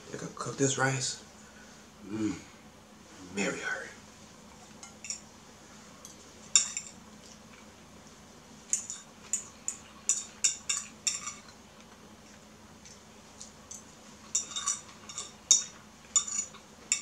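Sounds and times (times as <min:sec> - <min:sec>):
fork clinking on ceramic bowl: 0:13.7 - 0:17.0.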